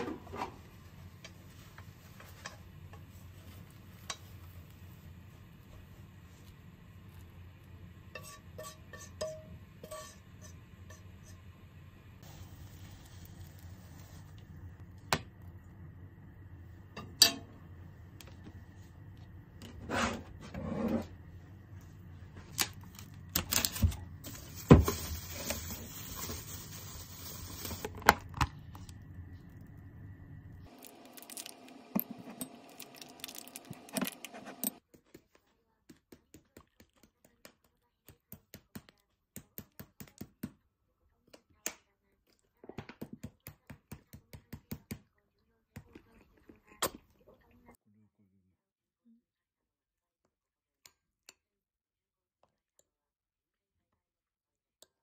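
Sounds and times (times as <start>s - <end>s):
low steady hum: 0.0s - 34.8s
chopsticks and pan clinking bowl: 8.1s - 11.4s.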